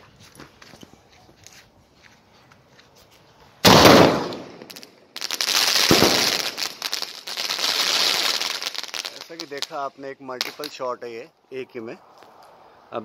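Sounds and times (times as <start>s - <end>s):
firework bang: 3.6s - 4.8s, 5.8s - 6.8s
firework crackling reports: 5.2s - 11.8s.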